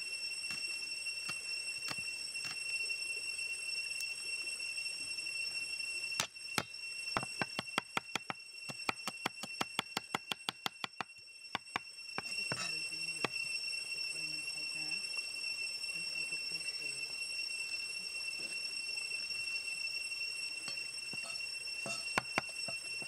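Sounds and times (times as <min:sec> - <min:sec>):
cleaver chopping on wood: 0:07.2 - 0:11.0.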